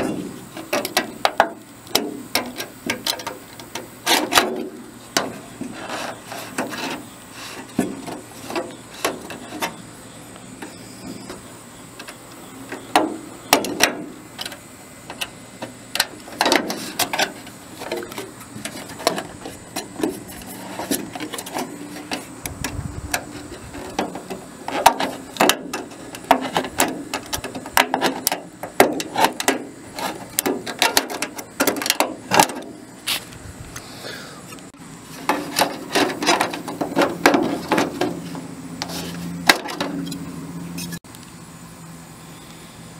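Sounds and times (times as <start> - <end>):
sheet metal rattling: 35.2 - 38.4.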